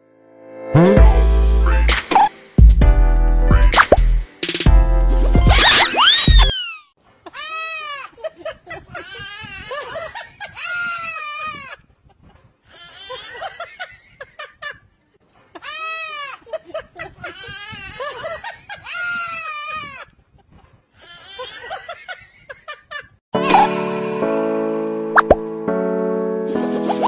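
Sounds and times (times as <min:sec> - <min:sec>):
toddler shrieking: 0:05.5 - 0:08.1.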